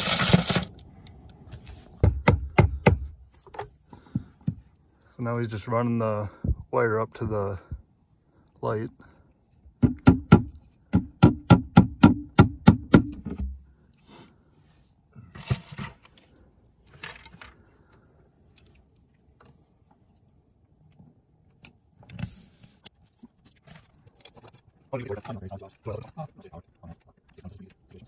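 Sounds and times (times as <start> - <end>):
cable rustling: 22.0 - 28.0.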